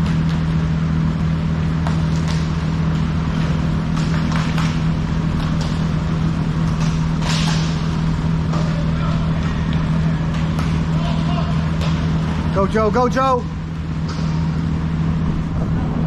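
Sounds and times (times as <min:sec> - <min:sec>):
large fan humming: 0:00.0 - 0:16.0
hockey sticks and puck clacking: 0:01.8 - 0:13.1.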